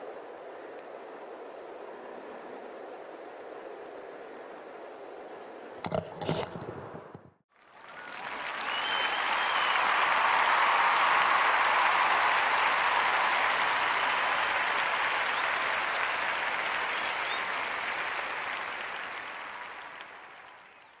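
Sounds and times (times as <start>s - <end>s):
crowd applauding: 7.5s - 21.0s.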